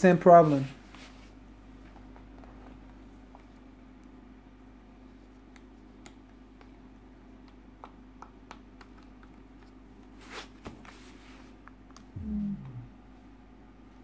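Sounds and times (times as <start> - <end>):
short falling tone: 12.2 - 13.0.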